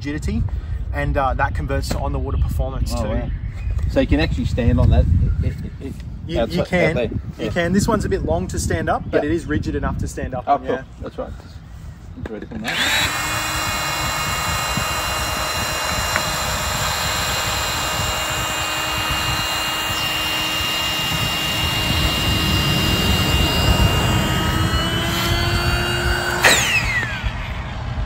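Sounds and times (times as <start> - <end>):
electric air pump whining: 12.6 - 28.0.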